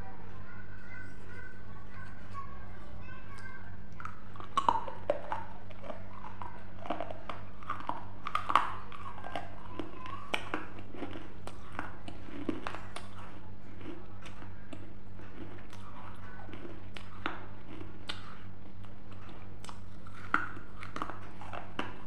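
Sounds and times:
low electrical hum: 0:00.0 - 0:22.0
chewing grapes: 0:01.2 - 0:22.0
mouth clicks: 0:03.4 - 0:13.1.

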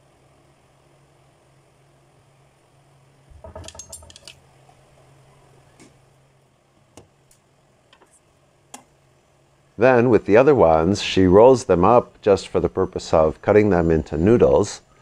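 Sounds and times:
low steady hum: 0:00.0 - 0:15.0
dishes clinking: 0:03.4 - 0:04.3.

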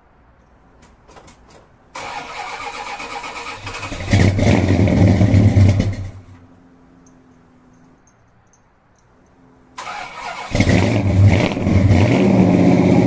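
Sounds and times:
car engine revving: 0:02.0 - 0:06.4, 0:09.8 - 0:13.0.

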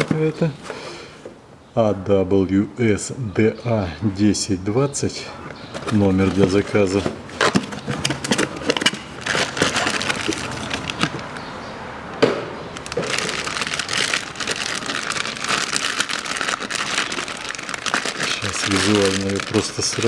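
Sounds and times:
cardboard box opening: 0:05.7 - 0:11.2
plastic bag crinkling: 0:05.8 - 0:11.2, 0:12.7 - 0:20.0.

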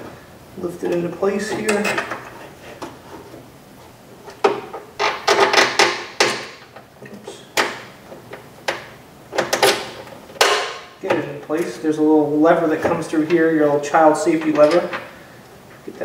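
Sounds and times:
door latch clicking and rattling: 0:08.6 - 0:10.8.

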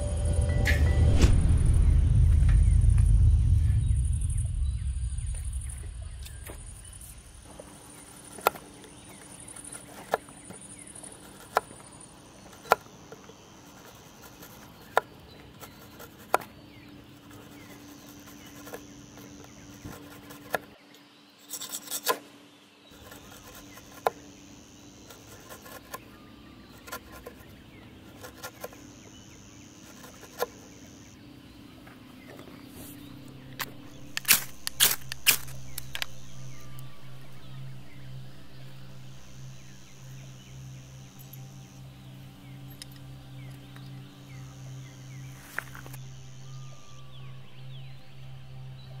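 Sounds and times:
knife scraping wood: 0:07.9 - 0:20.7, 0:21.4 - 0:22.2, 0:23.0 - 0:24.4, 0:25.0 - 0:31.0
sharp click: 0:33.6 - 0:36.2.

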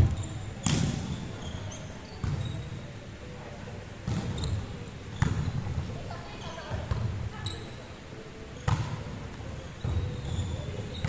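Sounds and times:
volleyball hits echoing in gym: 0:00.0 - 0:01.4, 0:02.2 - 0:02.8, 0:04.0 - 0:06.0, 0:08.6 - 0:09.2
sneaker squeaks on court floor: 0:00.0 - 0:02.9, 0:04.1 - 0:05.7, 0:06.4 - 0:07.8, 0:08.6 - 0:09.0, 0:09.6 - 0:11.0.

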